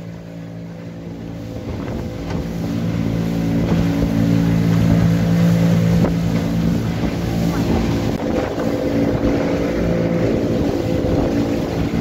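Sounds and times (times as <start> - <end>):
boat motor running: 0.0 - 12.0
rush of wind and water: 0.0 - 12.0.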